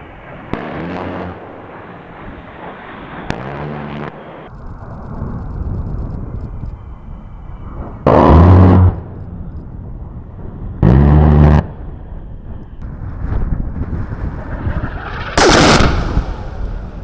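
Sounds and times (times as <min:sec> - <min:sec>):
rotary cannon firing bursts: 0:00.3 - 0:04.5, 0:13.9 - 0:17.0
aircraft engine rushing: 0:13.6 - 0:17.0.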